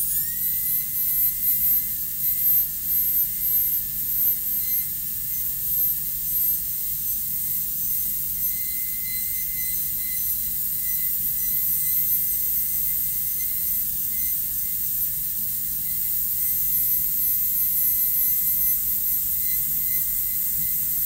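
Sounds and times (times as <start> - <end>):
dental drill whining: 0.0 - 21.0.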